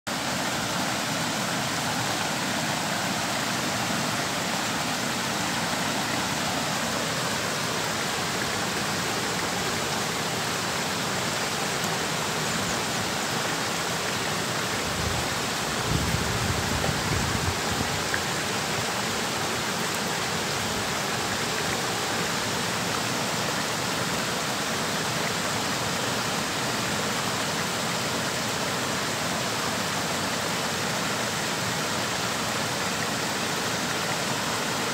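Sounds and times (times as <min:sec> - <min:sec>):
water rushing over a weir: 0:00.1 - 0:34.9.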